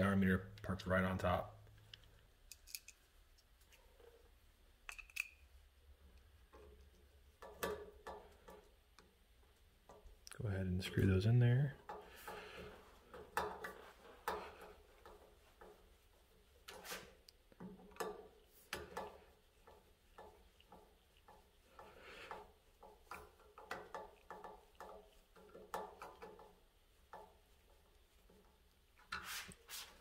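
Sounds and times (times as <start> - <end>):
screwdriver clicks and scrapes: 1.9 - 3.5, 4.9 - 5.5
small parts handling: 1.9 - 3.8, 4.8 - 5.5.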